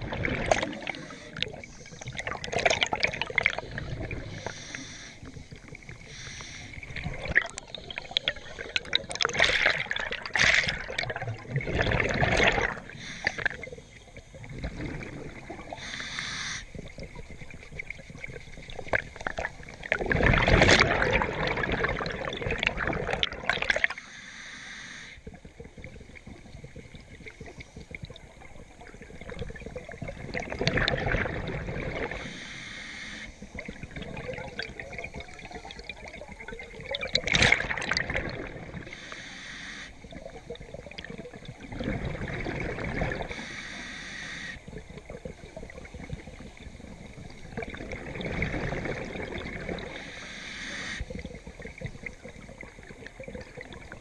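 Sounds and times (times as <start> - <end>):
exhaled bubbles crackling underwater: 0.0 - 24.2, 25.0 - 54.0
regulator inhalation hiss: 4.2 - 6.9, 12.9 - 13.8, 15.7 - 16.8, 24.0 - 25.2, 32.2 - 33.6, 38.9 - 40.1, 43.3 - 44.6, 50.0 - 51.1.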